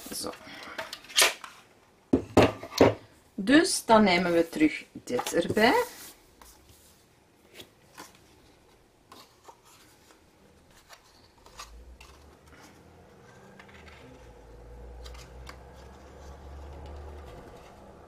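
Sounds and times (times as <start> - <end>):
paper rustling: 5.2 - 18.0.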